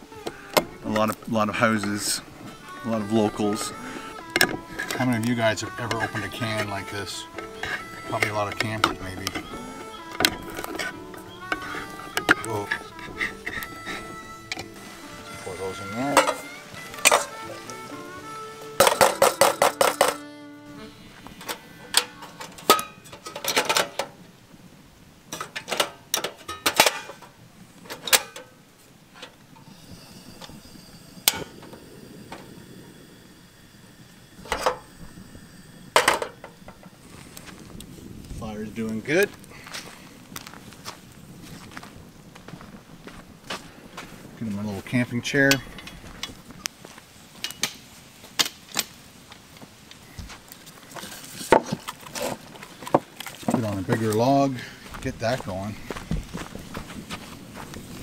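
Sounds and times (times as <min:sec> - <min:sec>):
wood fire crackling: 0:00.0 - 0:58.0.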